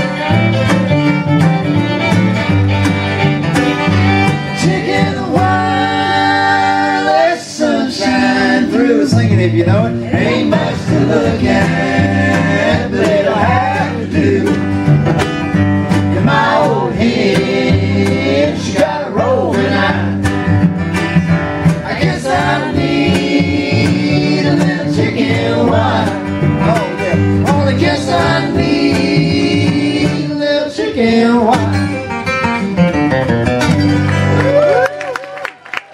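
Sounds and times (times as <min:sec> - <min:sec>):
fiddle: 0:00.0 - 0:07.1
cello: 0:00.0 - 0:07.2
mandolin: 0:00.0 - 0:07.2, 0:07.9 - 0:30.4, 0:31.0 - 0:34.6
strummed acoustic guitar: 0:00.0 - 0:34.4
voices singing together: 0:04.4 - 0:14.9, 0:16.1 - 0:20.3, 0:21.7 - 0:31.9.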